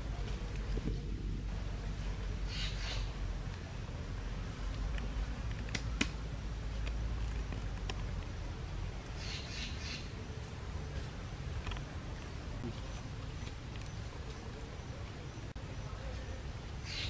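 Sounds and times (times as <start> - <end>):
low steady rumble: 0.0 - 16.8
campfire crackling and popping: 3.4 - 9.2.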